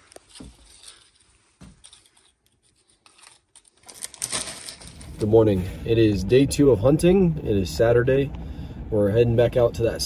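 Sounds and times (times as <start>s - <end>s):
tortilla chips rustling and clicking: 0.0s - 5.3s
crinkly rustle: 0.0s - 5.5s.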